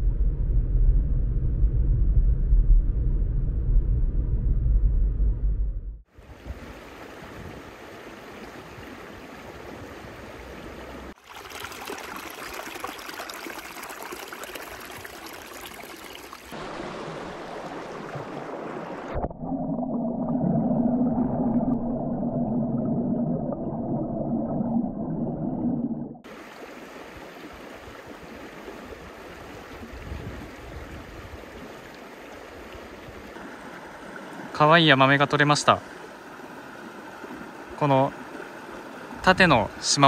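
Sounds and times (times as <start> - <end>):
steady low hum: 0.0 - 6.0
small stream running: 6.1 - 19.3, 26.2 - 40.0.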